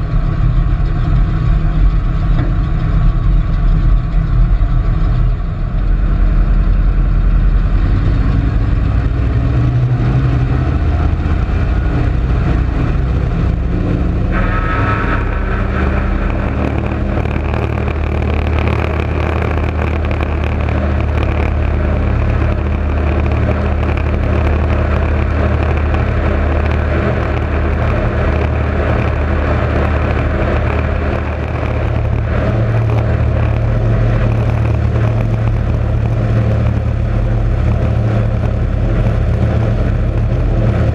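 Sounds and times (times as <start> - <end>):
propeller aircraft engines roaring: 0.0 - 40.9
rushing air: 8.6 - 40.9.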